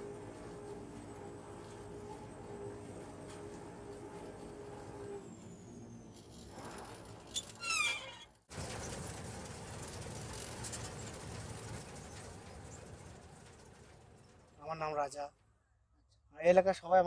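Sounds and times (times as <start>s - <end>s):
combine harvester drone: 0.0s - 7.3s
high squeaks falling in pitch: 7.4s - 8.4s.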